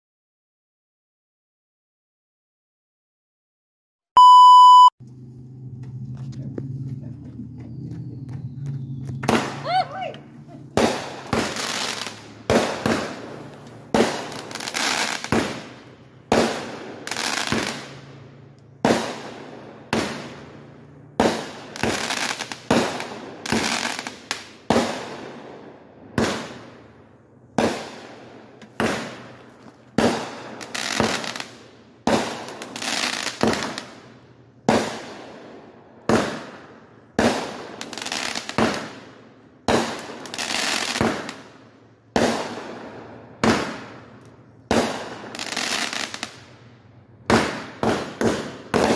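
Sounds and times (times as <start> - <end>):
fireworks bangs: 9.1 - 18.1, 18.8 - 26.9, 27.5 - 48.9.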